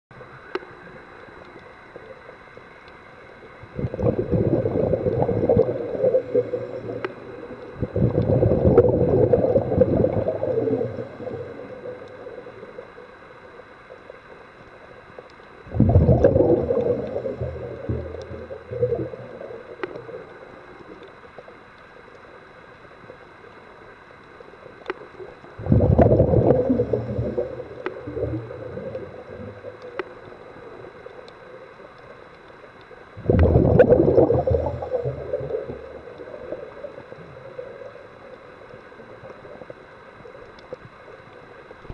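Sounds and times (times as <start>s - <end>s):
low hiss of water: 0.2s - 41.9s
diver's breath bubbling underwater: 3.6s - 12.3s, 15.7s - 20.2s, 25.6s - 29.7s, 33.2s - 37.9s.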